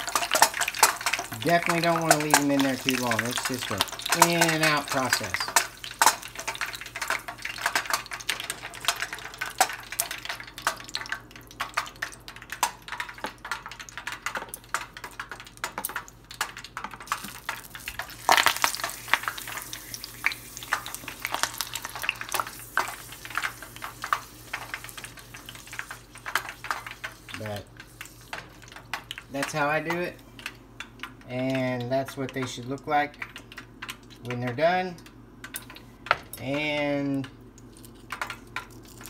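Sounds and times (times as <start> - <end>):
metal tongs clicking on pot: 0.0 - 17.6
leaves sizzling in hot oil: 0.0 - 30.2.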